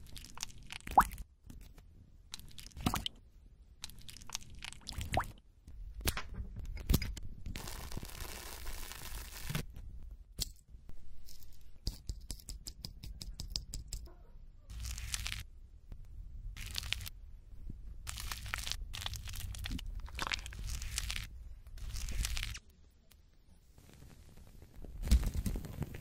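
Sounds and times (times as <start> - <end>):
foil tearing: 7.6 - 9.6
plastic crinkling: 14.7 - 15.4, 18.0 - 22.6.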